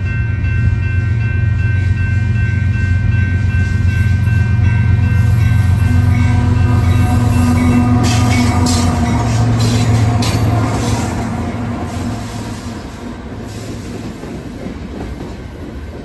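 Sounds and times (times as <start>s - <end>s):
diesel locomotive engine rumble: 0.0s - 16.0s
wheels clattering on rails: 3.4s - 16.0s.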